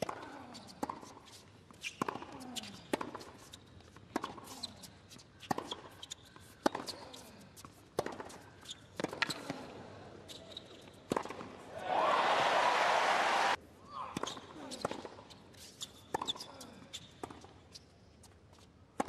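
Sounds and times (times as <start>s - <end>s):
faint shoe squeaks: 8.5s - 9.5s, 10.2s - 11.0s, 14.2s - 18.2s.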